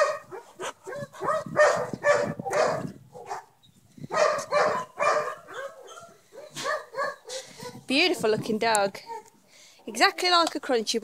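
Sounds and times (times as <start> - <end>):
dog barking: 0.0 - 3.5, 4.1 - 7.9.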